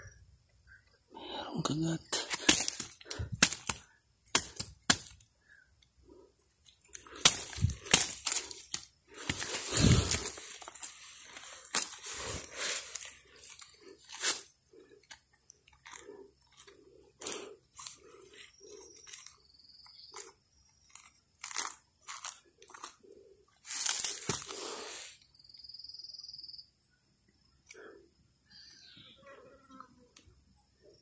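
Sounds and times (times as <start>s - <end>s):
rotten wood and leaves crunching: 1.6s - 5.2s, 6.6s - 19.4s, 20.1s - 23.0s, 23.6s - 24.9s.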